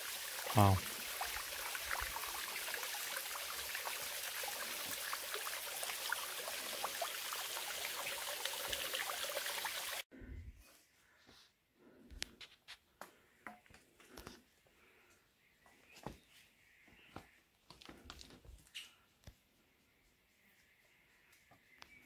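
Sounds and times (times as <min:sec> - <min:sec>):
stream trickling over rocks: 0:00.0 - 0:10.0.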